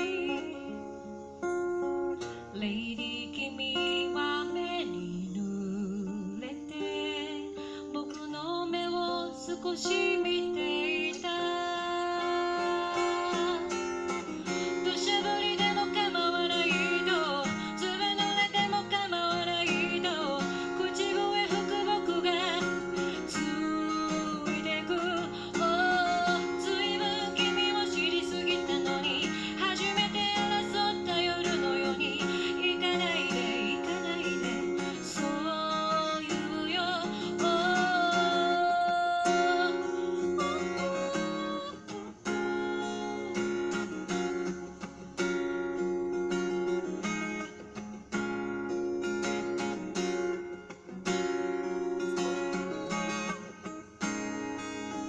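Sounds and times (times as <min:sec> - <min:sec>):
woman singing: 0:00.0 - 0:01.5, 0:02.1 - 0:44.5
acoustic guitar: 0:00.0 - 0:55.0.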